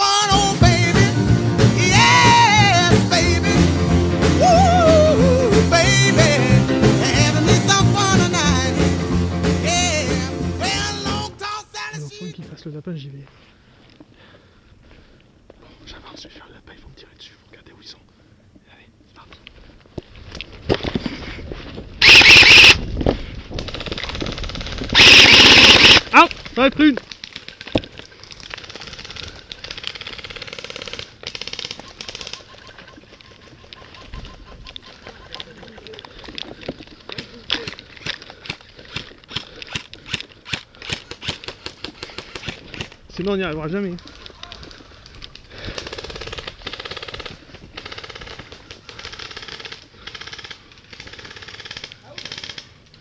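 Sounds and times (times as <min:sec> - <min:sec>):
airsoft rifle automatic fire: 0:22.0 - 0:22.8, 0:23.7 - 0:26.2, 0:28.6 - 0:32.5, 0:45.7 - 0:52.8.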